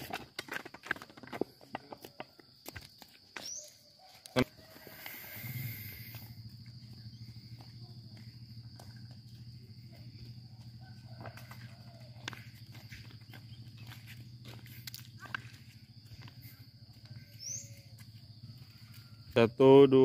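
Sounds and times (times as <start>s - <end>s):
high insect whine: 2.5s - 20.0s
steady low hum: 4.8s - 19.2s.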